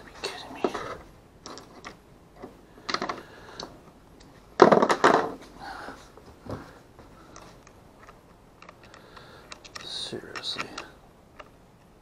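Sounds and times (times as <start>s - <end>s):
light plastic clicks: 7.3s - 11.9s.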